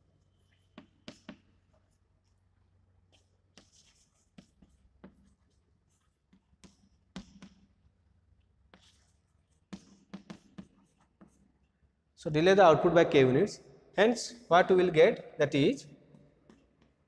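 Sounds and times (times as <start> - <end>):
chalk tapping and scratching: 0.4 - 11.8, 16.4 - 17.0.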